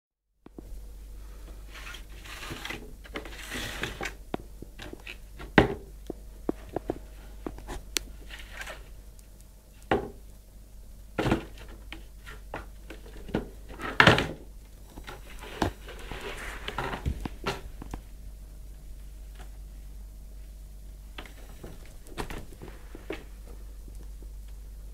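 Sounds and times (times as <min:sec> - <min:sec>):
cardboard rustling scrapes: 0:01.6 - 0:04.2, 0:06.5 - 0:08.9, 0:14.9 - 0:17.8, 0:21.4 - 0:23.6.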